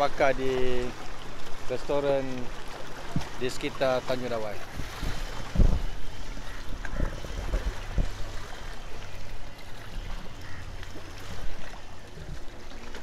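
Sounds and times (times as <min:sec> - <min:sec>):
small waves lapping: 0:00.0 - 0:13.0
boat engine drone: 0:02.2 - 0:13.0
wind buffeting microphone: 0:04.6 - 0:10.3.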